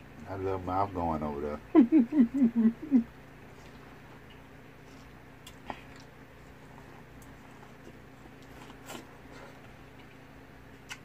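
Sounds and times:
steady low hum: 0:00.0 - 0:11.0
corn on the cob being chewed: 0:03.5 - 0:11.0.

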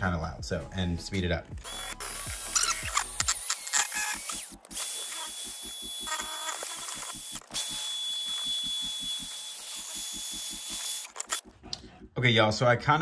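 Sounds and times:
electric drill whining: 0:01.6 - 0:11.5.

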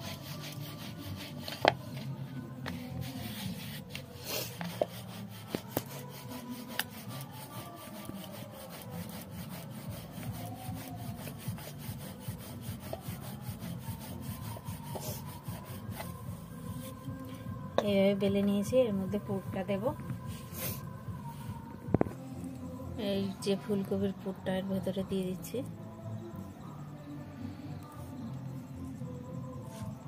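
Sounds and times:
rolling pin rubbing on dough: 0:00.0 - 0:17.1.

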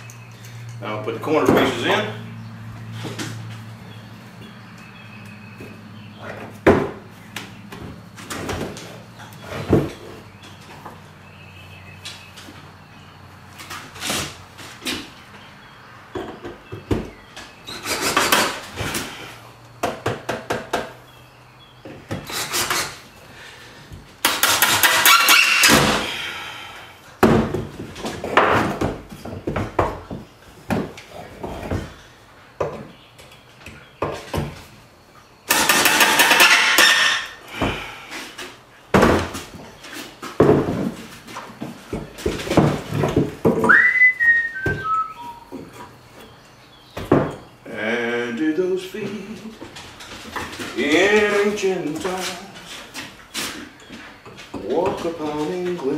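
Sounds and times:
wood and tools clattering: 0:00.0 - 0:11.2, 0:16.1 - 0:21.2, 0:21.8 - 0:47.8, 0:48.5 - 0:55.9
whistle falling in pitch: 0:43.6 - 0:45.5.

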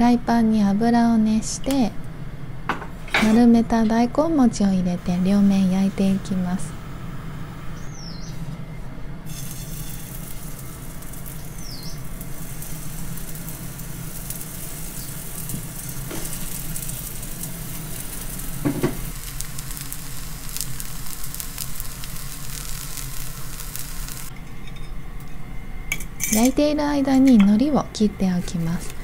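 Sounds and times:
patties sizzling in hot oil: 0:09.3 - 0:24.3.

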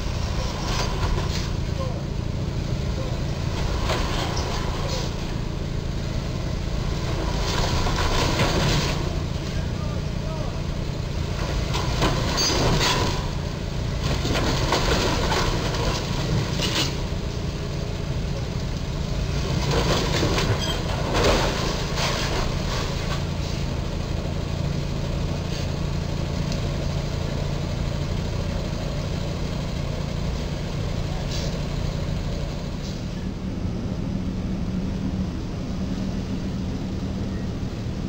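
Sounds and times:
truck engine running: 0:00.0 - 0:38.0
metal crunching and scraping: 0:06.9 - 0:09.7, 0:11.2 - 0:17.6, 0:19.2 - 0:23.7.

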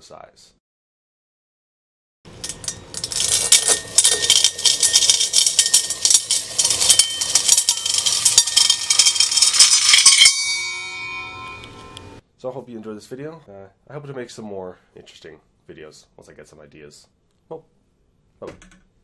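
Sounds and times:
metallic ringing: 0:02.3 - 0:12.2
metal bead chain rattling: 0:02.4 - 0:12.2.

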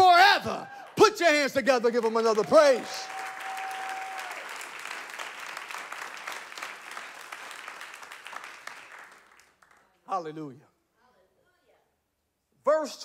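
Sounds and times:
crowd clapping: 0:00.6 - 0:10.1.

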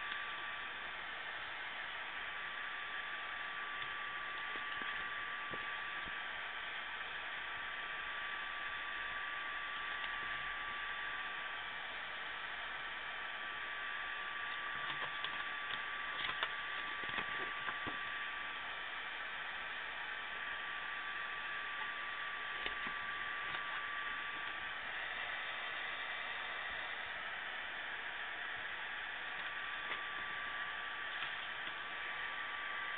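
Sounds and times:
electronic hiss with thin whine: 0:00.0 - 0:32.9
booklet pages rustling: 0:16.2 - 0:18.0.

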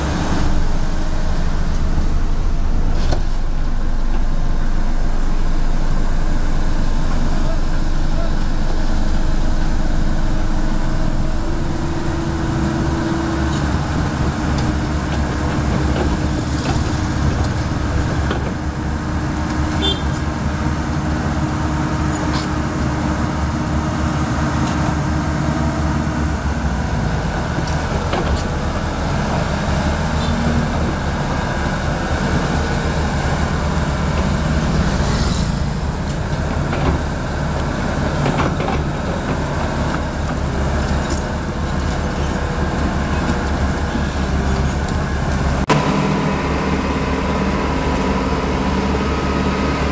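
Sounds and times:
bulldozer diesel engine under load: 0:00.0 - 0:49.9
steady engine hum: 0:00.0 - 0:49.9.

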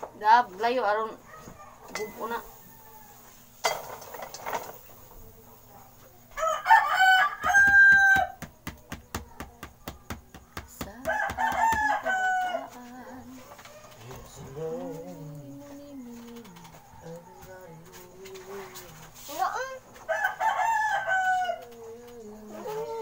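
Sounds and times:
rooster crowing: 0:01.3 - 0:03.6, 0:06.3 - 0:08.5, 0:10.8 - 0:18.7, 0:20.0 - 0:23.0.

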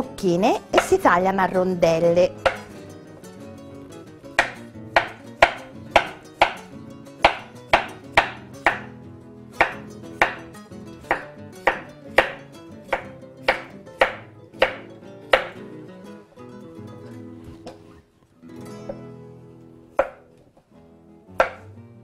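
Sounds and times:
knife knocking on wooden board: 0:02.4 - 0:02.7, 0:04.4 - 0:06.6, 0:07.2 - 0:08.9, 0:20.0 - 0:20.3, 0:21.4 - 0:21.6.

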